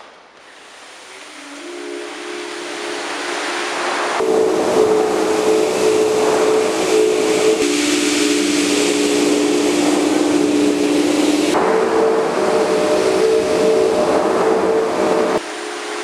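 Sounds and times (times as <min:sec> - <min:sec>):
held humming tones: 0:01.0 - 0:15.8.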